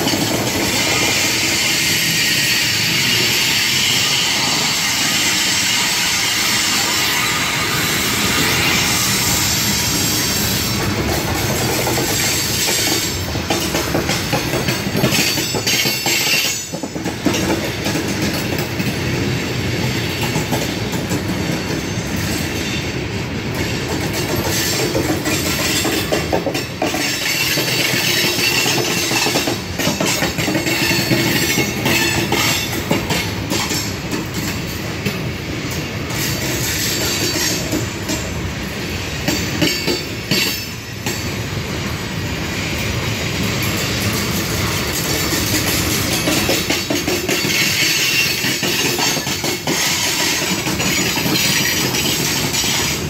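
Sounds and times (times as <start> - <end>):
clickety-clack over rail joints: 0.0 - 9.5, 10.2 - 53.0
train wheels rumbling on rails: 0.0 - 53.0
high wheel squeal: 0.7 - 10.8.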